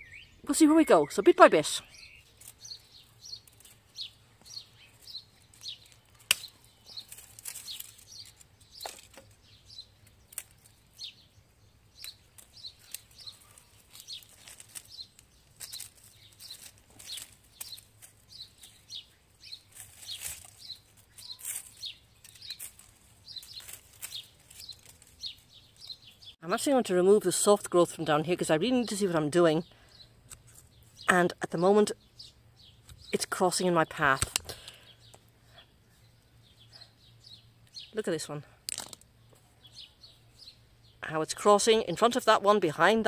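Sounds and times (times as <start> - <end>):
small birds chirping: 0.0 - 43.0
pruning shears cutting branches: 2.2 - 11.1, 11.9 - 26.0, 34.0 - 34.8.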